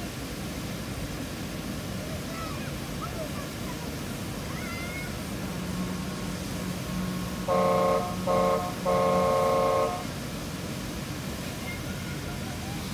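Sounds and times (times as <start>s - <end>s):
steady low hum: 5.1s - 11.4s
vehicle horn toots: 6.6s - 10.1s.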